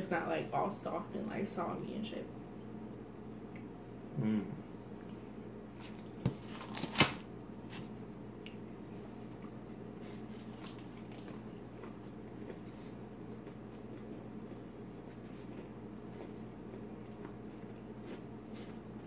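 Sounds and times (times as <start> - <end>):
low steady hum: 0.0 - 19.0
crispy food crunching: 5.8 - 8.6, 9.3 - 14.6
faint chewing: 9.2 - 19.0.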